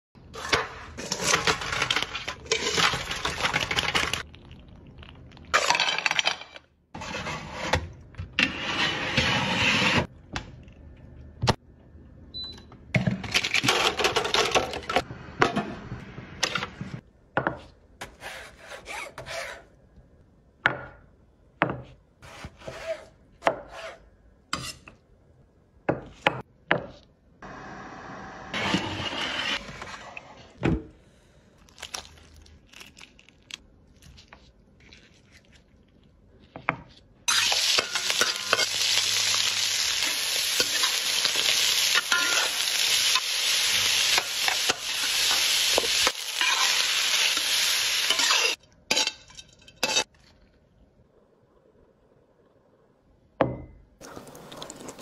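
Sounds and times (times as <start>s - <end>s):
kitchen scraping and clattering: 0.3s - 4.2s, 5.6s - 10.1s, 13.0s - 18.2s, 36.7s - 43.3s, 44.0s - 50.3s.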